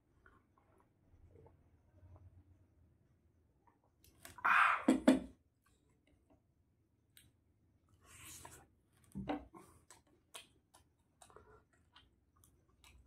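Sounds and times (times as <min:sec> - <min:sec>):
person chewing with mouth clicks: 0:09.5 - 0:13.0.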